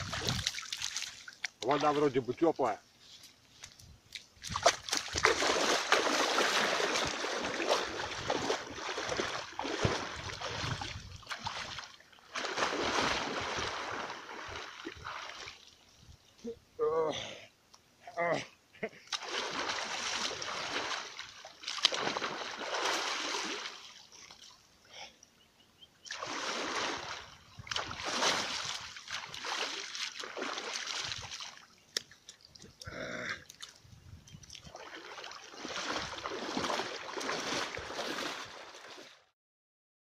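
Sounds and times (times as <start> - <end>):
water splashing and sloshing: 0.0 - 16.3, 19.0 - 24.8, 26.0 - 39.3.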